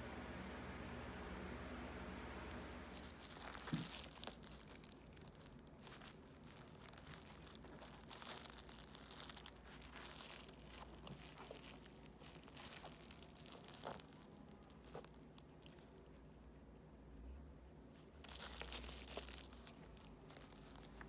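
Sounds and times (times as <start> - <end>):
kitten scratching fabric toy: 2.4 - 16.0.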